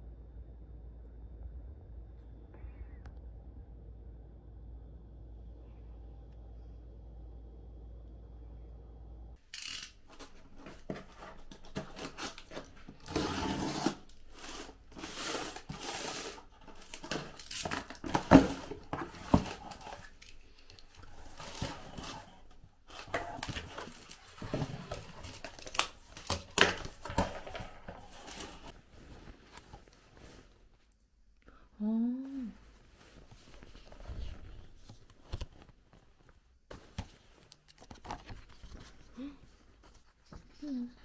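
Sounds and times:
rustling crinkling and tearing: 0:09.5 - 0:30.6.

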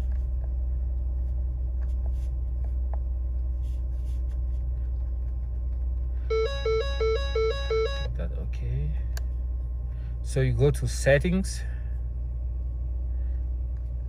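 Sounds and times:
car engine idling: 0:00.0 - 0:14.0
two-note warning chime: 0:06.3 - 0:08.1.

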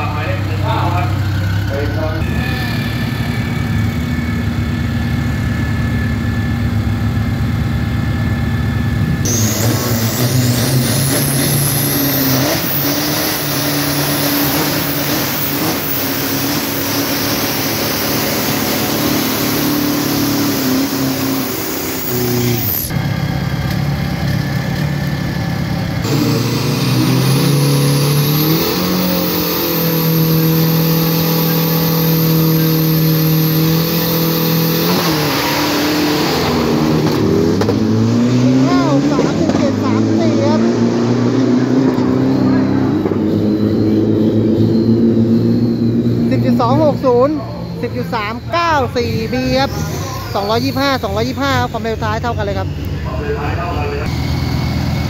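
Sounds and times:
truck engine revving: 0:00.0 - 0:55.0
thin rising whistle: 0:39.7 - 0:55.0.

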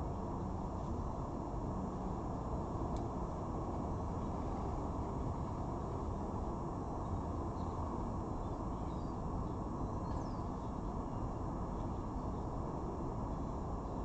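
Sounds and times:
low outdoor rumble: 0:00.0 - 0:14.0
faint bird chirps: 0:08.4 - 0:12.5.

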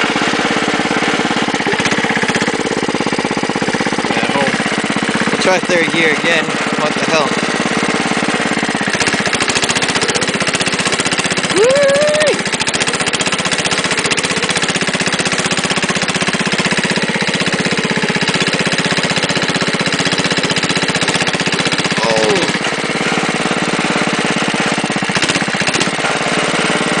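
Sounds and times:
garden tractor engine running: 0:00.0 - 0:27.0.

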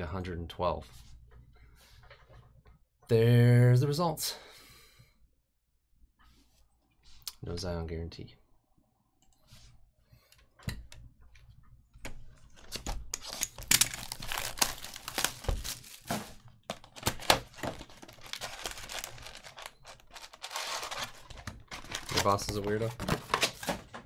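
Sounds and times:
foil packs crinkling: 0:13.2 - 0:24.0
cardboard box tearing: 0:14.0 - 0:16.4, 0:17.0 - 0:22.4.

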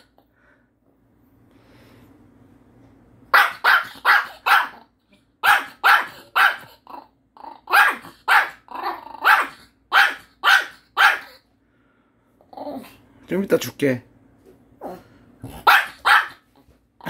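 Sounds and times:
small dog barking: 0:03.3 - 0:06.9, 0:07.6 - 0:11.4, 0:15.4 - 0:16.5.

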